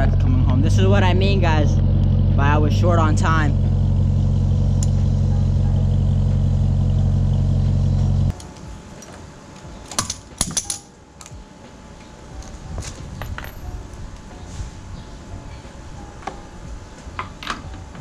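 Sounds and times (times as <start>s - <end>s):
vehicle engine idling: 0.0s - 8.3s
metallic clicks of hand tools: 9.9s - 11.4s.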